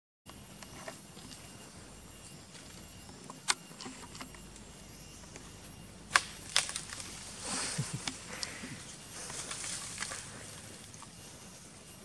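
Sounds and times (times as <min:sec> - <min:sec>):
snaps and clicks in tree: 0:03.0 - 0:05.5, 0:06.1 - 0:11.2
rustling branch: 0:05.6 - 0:12.0.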